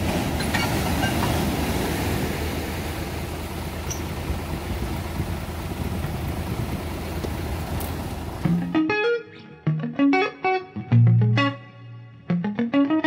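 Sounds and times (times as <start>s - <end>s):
surf washing up sand: 0.0s - 8.6s
tractor engine idling: 0.0s - 8.7s.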